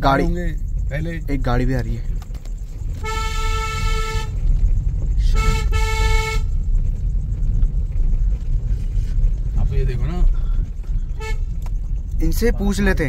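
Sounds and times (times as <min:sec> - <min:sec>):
vehicle engine rumble: 0:00.0 - 0:13.0
car horn: 0:02.9 - 0:06.7, 0:11.0 - 0:11.9.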